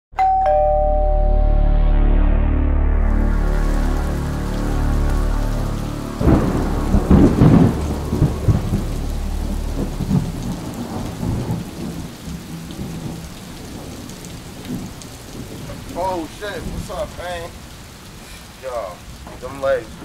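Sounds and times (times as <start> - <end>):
thunder cracking and rumbling: 2.9 - 17.9
rain hiss: 3.2 - 20.0.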